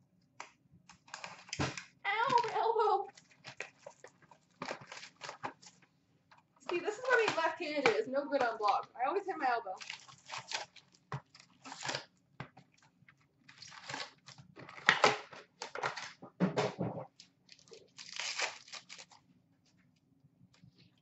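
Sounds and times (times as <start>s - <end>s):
foil packs crinkling and rustling: 0.9s - 5.9s, 6.6s - 8.9s, 9.8s - 12.1s, 12.8s - 16.2s, 17.2s - 19.3s.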